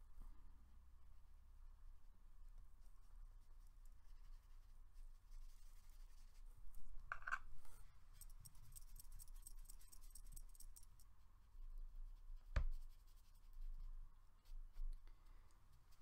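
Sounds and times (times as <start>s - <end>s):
faint fast ticking: 8.2s - 11.1s.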